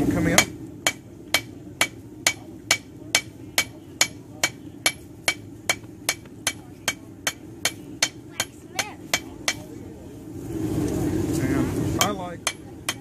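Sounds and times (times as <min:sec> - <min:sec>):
hammer striking metal on anvil: 0:00.3 - 0:09.7, 0:12.0 - 0:13.0.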